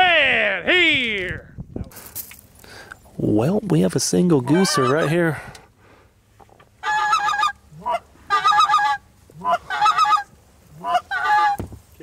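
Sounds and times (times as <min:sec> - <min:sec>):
goose call honking clucks: 0:04.4 - 0:05.4, 0:06.8 - 0:11.6.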